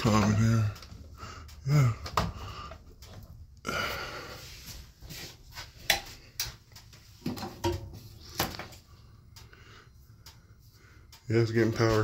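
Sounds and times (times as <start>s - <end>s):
clicks of wires and sheet metal: 5.8s - 8.8s.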